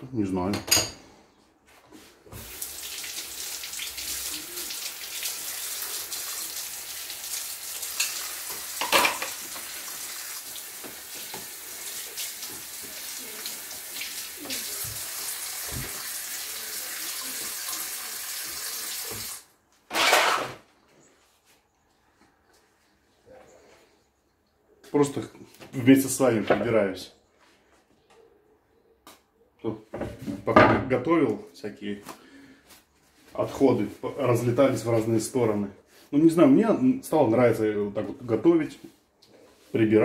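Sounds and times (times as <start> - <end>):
tap running into a sink: 10.7 - 11.6, 14.8 - 16.1, 19.0 - 19.4.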